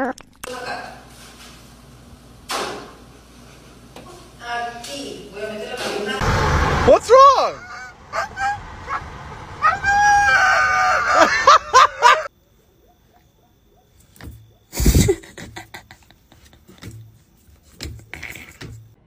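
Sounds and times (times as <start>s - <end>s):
dog howling: 7.2s - 12.3s.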